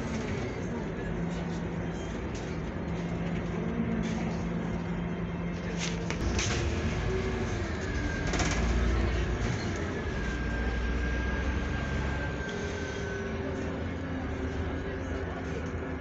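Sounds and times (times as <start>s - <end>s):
bus engine drone: 0.0s - 16.0s
road rumble: 0.0s - 16.0s.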